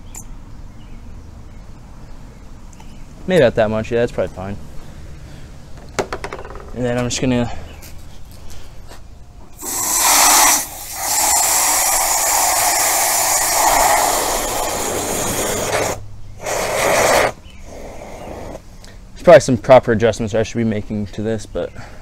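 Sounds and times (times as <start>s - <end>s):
water spraying from hose nozzle: 9.6s - 17.4s.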